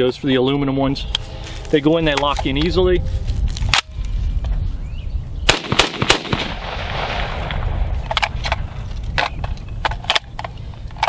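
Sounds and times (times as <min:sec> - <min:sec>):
rifle shots: 0:05.5 - 0:09.3
metallic clicks of rifle handling: 0:08.0 - 0:11.0.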